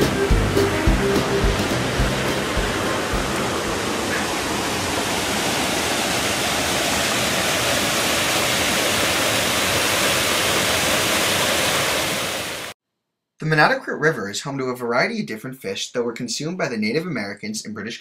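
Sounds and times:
water rushing over rock: 0.8s - 12.7s.

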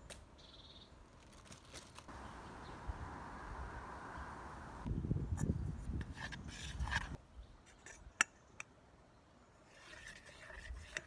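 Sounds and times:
fork scraping a saucepan: 9.7s - 11.0s.

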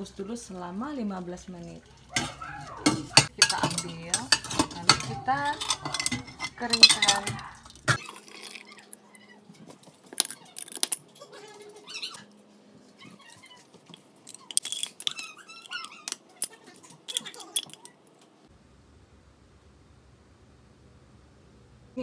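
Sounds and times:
glass jar and metal lid clinking: 2.2s - 9.0s, 10.1s - 11.2s, 13.9s - 18.1s.

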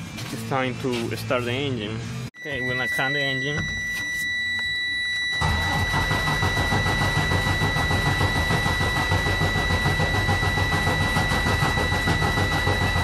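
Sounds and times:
steady high-pitched tone: 2.3s - 13.0s.

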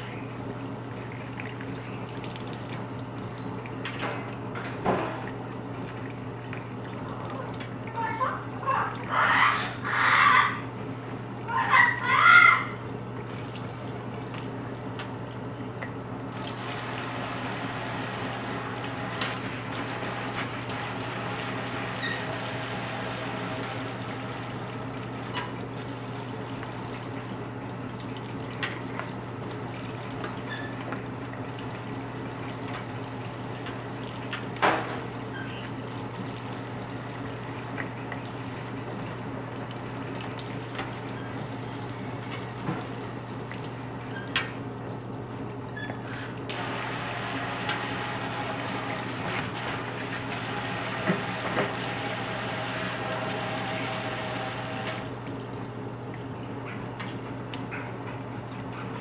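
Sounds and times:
water spraying into a steel sink: 16.2s - 27.6s, 46.5s - 55.6s.

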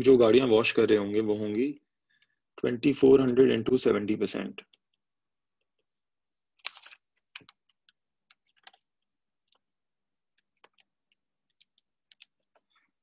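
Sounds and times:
faint clicks and taps: 6.6s - 9.7s, 10.3s - 12.9s.

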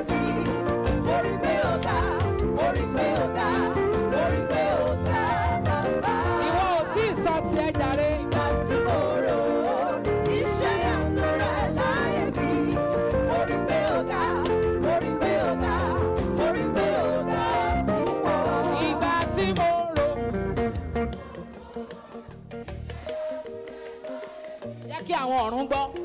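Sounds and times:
person singing: 0.0s - 2.0s
band playing guitar bass and drums: 0.0s - 24.9s.

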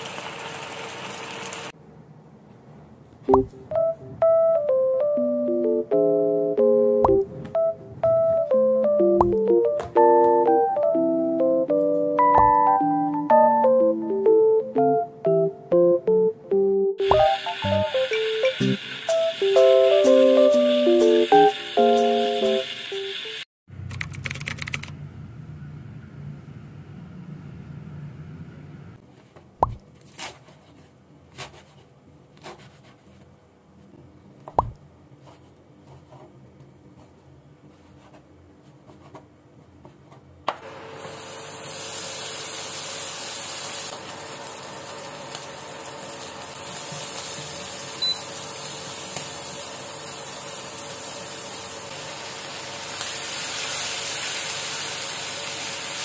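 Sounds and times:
food sizzling in frying pan: 0.0s - 1.7s, 17.0s - 23.4s, 41.0s - 56.0s.

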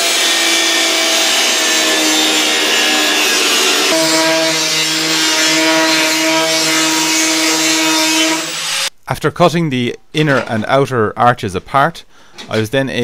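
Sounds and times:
angle grinder cutting metal: 0.0s - 8.9s.

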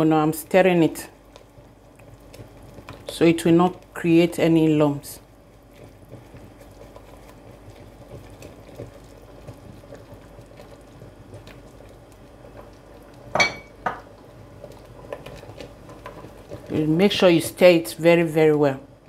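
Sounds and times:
wooden spoon scraping pot: 5.6s - 18.2s.

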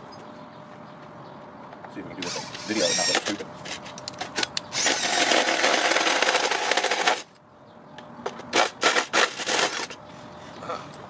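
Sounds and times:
cordless drill cranking engine: 2.2s - 3.4s, 4.7s - 7.3s, 8.6s - 10.0s.

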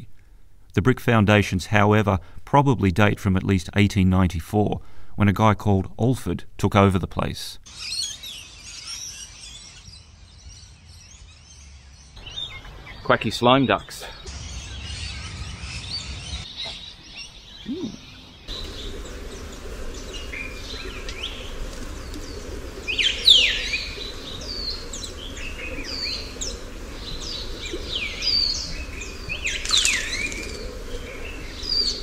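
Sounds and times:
wild birds chirping and calling: 7.6s - 32.0s
low background hiss: 17.4s - 32.0s.

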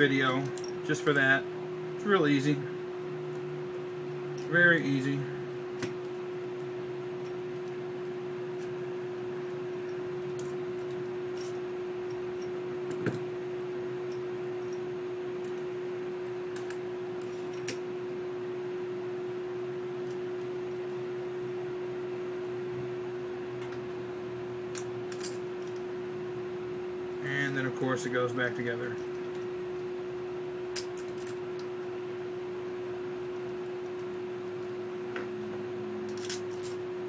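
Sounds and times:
room hum: 0.0s - 37.0s
metal parts clicking: 36.1s - 36.8s.

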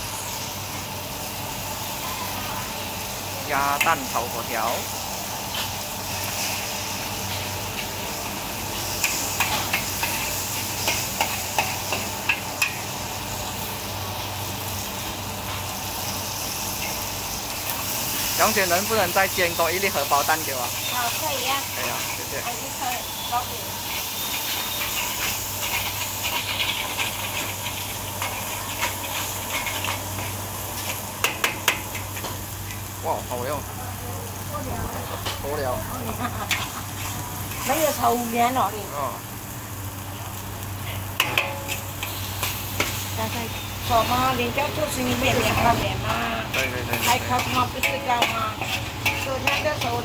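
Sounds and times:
noodles sizzling in a wok: 0.0s - 50.0s
metal spatula scraping a wok: 8.8s - 12.9s, 20.5s - 32.8s, 36.3s - 38.2s, 40.8s - 50.0s.

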